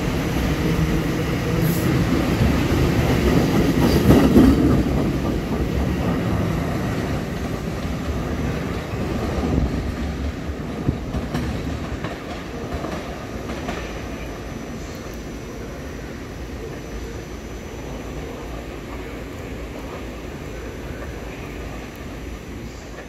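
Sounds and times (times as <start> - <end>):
train passing on tracks: 0.0 - 23.0.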